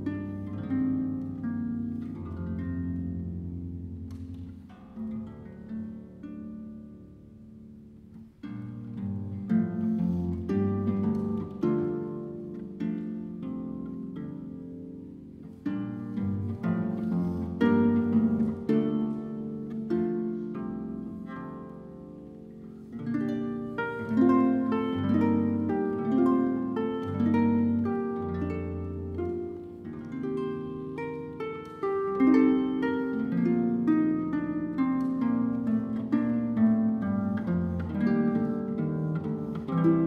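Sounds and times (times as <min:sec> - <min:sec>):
harp playing: 0:00.0 - 0:40.0.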